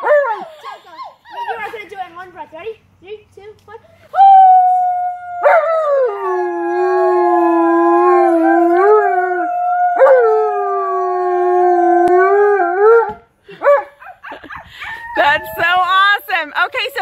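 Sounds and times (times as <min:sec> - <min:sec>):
boy howling: 0:04.1 - 0:12.8
dog howling: 0:04.2 - 0:13.1.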